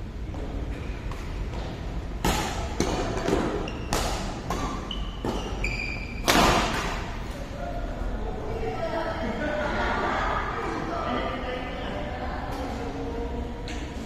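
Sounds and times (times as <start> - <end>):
rackets hitting shuttlecock: 1.1 - 5.6, 6.2 - 7.2
shoes squeaking on court floor: 3.2 - 6.3.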